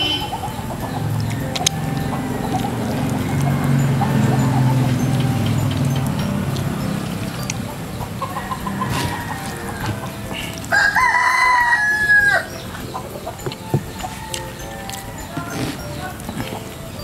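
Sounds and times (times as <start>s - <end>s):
rooster crowing: 8.1s - 16.8s.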